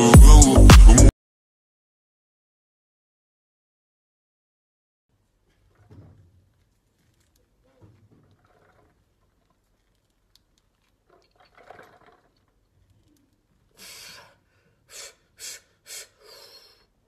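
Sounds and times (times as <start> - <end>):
person breathing hard: 13.7 - 17.0.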